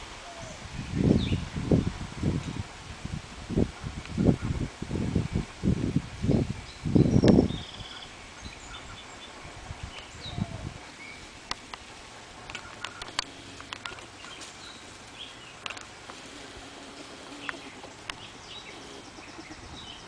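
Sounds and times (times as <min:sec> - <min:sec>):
rustling in foliage: 0:00.0 - 0:20.0
small birds chirping: 0:06.2 - 0:20.0
sharp clicks: 0:11.5 - 0:14.5, 0:15.6 - 0:18.3.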